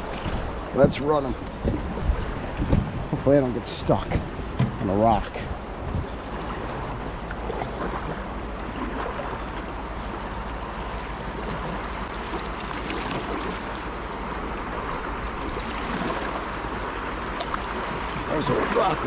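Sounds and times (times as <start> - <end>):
paddle splashing in water: 0.0 - 3.2, 4.1 - 19.0
river rapids rushing: 10.8 - 19.0.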